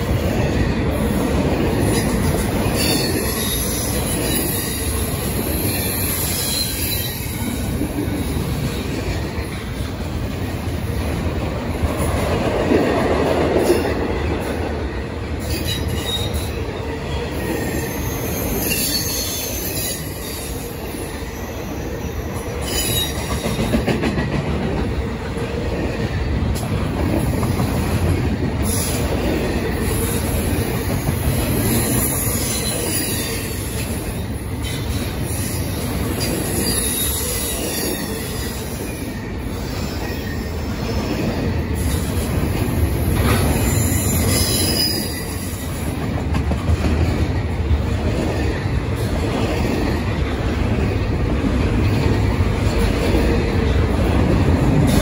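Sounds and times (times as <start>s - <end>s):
steel train wheels rumbling on rail: 0.0s - 55.0s
faint high wheel squeals: 17.6s - 23.3s.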